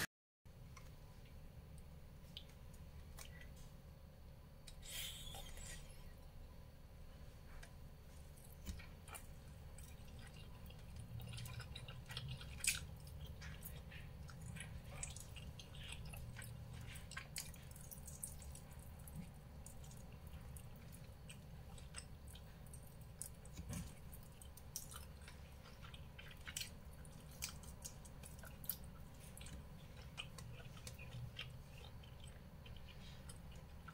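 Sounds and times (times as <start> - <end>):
steady low hum: 0.0 - 33.9
person chewing with wet mouth clicks: 8.4 - 33.9.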